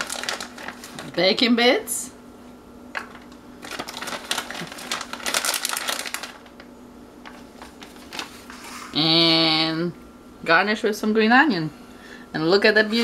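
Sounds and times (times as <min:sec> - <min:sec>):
plastic pouch crinkling: 0:00.0 - 0:01.2, 0:03.0 - 0:08.5.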